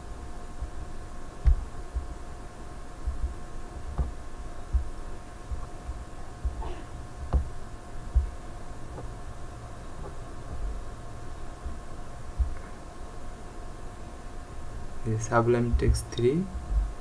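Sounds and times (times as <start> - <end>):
steady electrical hum: 0.0 - 17.0
low thumps: 0.6 - 2.2, 3.0 - 12.7, 15.6 - 17.0.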